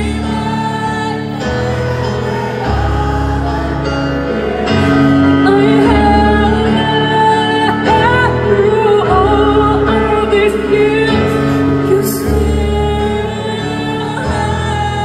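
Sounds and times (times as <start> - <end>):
piano-led band accompaniment: 0.0 - 15.0
woman singing rock ballad: 5.3 - 15.0.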